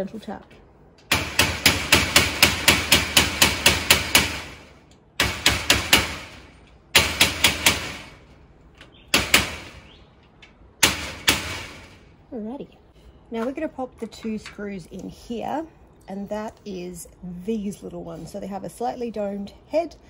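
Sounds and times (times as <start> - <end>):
rubber mallet tapping metal door: 1.1 - 10.1, 10.7 - 12.2
metal door ringing: 10.8 - 12.2.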